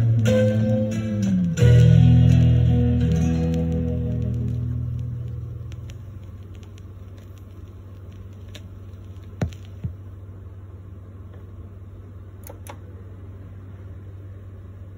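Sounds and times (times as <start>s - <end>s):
turntable low hum: 0.0s - 14.9s
stylus ticks: 1.2s - 9.8s.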